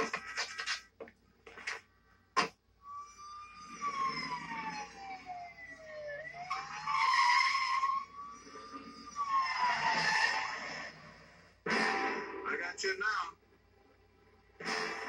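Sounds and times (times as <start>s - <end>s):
police siren wailing: 2.8s - 11.5s.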